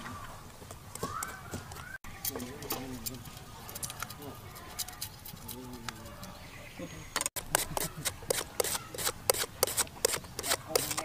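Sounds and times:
faint background voices: 1.0 - 11.0
knife slicing root: 7.4 - 11.0.

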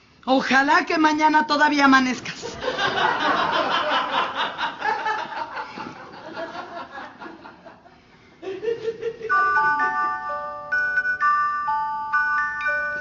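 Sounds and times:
studio audience laughing: 2.4 - 10.1.

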